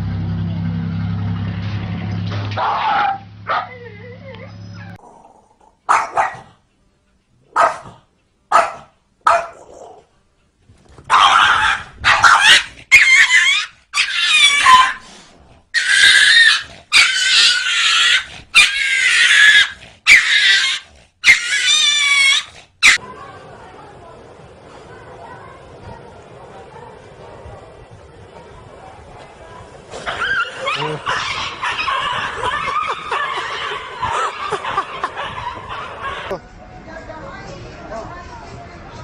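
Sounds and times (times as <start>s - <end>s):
dogs barking: 2.5s - 3.9s, 4.8s - 6.6s, 7.5s - 10.1s, 11.1s - 15.0s, 15.8s - 23.0s, 30.0s - 36.4s
dogs yelping high-pitched cries: 11.1s - 15.0s, 15.8s - 23.0s, 30.0s - 36.3s.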